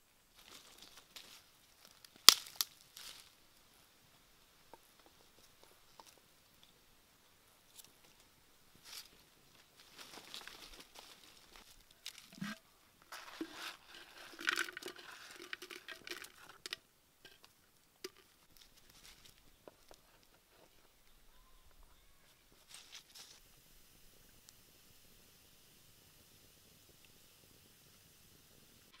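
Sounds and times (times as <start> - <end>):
faint steady hiss: 0.0 - 29.0
dry rustling and scraping in pan: 9.8 - 21.0, 22.5 - 23.4.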